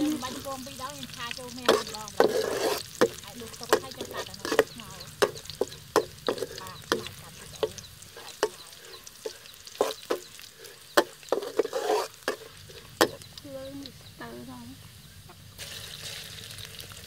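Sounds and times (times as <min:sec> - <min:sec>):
metal spatula scraping wok: 0:00.0 - 0:13.3
garlic sizzling in oil: 0:00.0 - 0:17.0.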